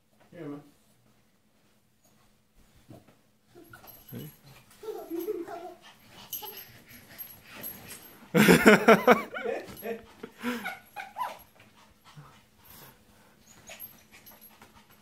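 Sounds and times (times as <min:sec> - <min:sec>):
small dog whining: 0:10.4 - 0:11.5.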